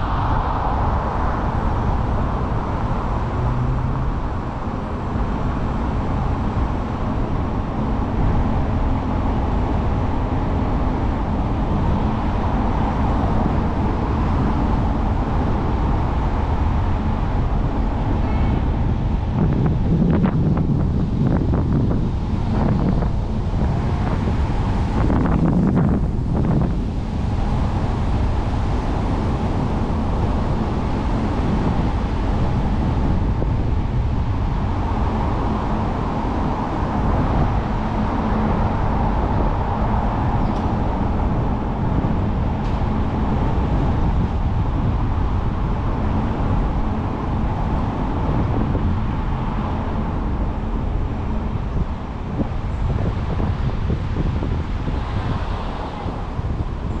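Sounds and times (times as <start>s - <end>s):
car road noise: 0.0s - 57.0s
wind rush: 0.0s - 57.0s.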